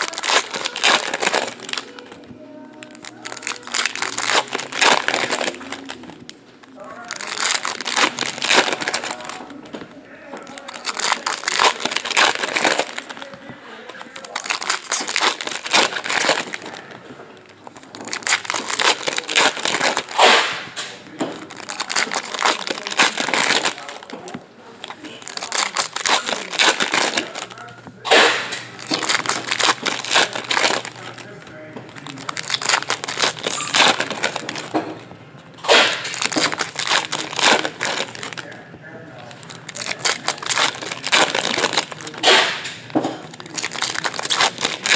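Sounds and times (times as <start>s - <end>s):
foil wrappers crinkling: 0.0s - 44.9s.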